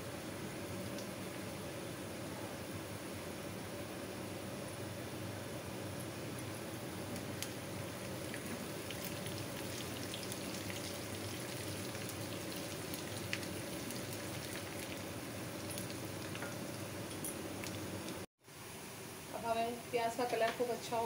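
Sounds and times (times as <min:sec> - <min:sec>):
crackles of frying: 0:00.0 - 0:21.0
onions sizzling in hot oil: 0:06.4 - 0:18.2.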